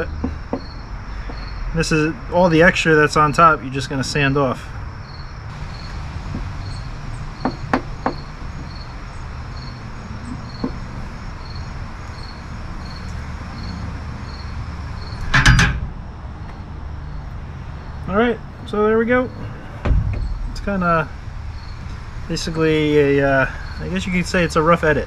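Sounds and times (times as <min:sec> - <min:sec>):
insect chirping: 0:00.0 - 0:25.0
low outdoor rumble: 0:00.0 - 0:25.0
tool clattering on metal table: 0:15.3 - 0:15.8.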